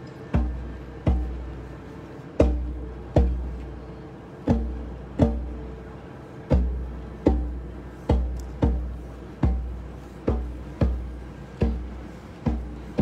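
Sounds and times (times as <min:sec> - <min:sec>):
deep drum hits: 0:06.5 - 0:13.0.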